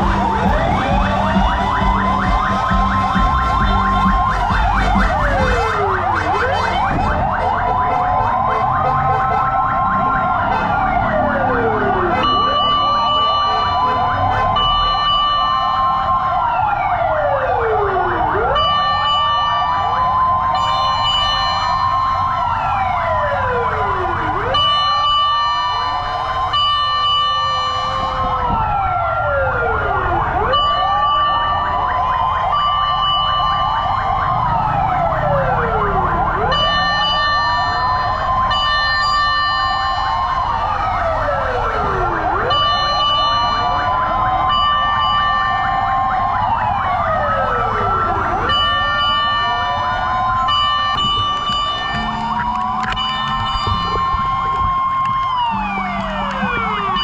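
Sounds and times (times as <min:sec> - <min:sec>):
fire truck sirens wailing: 0:00.0 - 0:57.0
steady siren tone: 0:00.0 - 0:57.0.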